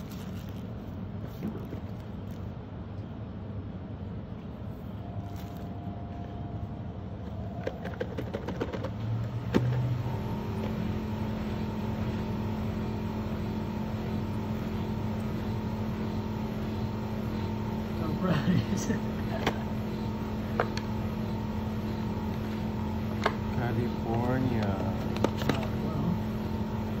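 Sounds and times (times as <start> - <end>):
low motor-like hum: 0.0 - 27.0.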